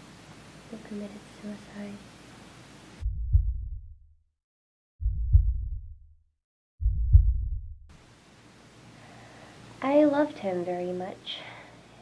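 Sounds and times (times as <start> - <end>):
deep low thuds: 3.0 - 4.2, 5.0 - 6.2, 6.8 - 8.0.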